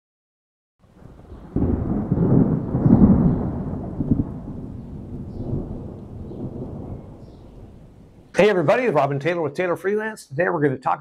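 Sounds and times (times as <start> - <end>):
thunder-like rumbling: 0.8 - 8.8.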